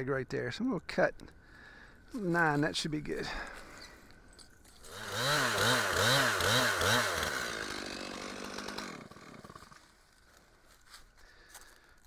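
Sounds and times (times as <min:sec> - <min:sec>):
chainsaw cutting a log: 0:04.8 - 0:09.9.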